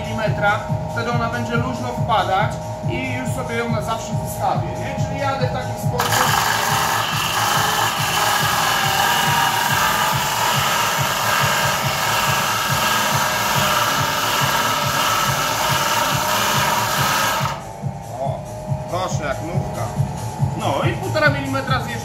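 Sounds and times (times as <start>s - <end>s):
power grinder grinding: 6.0s - 17.7s.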